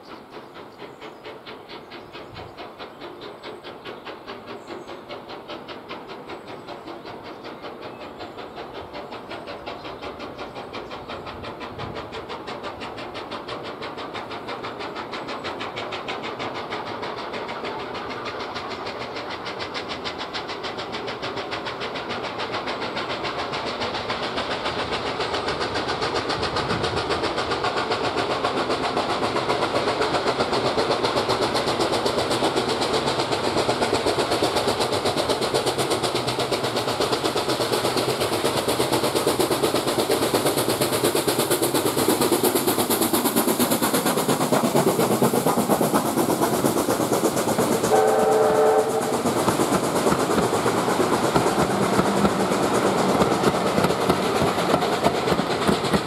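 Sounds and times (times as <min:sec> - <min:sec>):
steam locomotive exhaust beats: 0:00.0 - 0:56.0
steam whistle blast: 0:47.9 - 0:49.2.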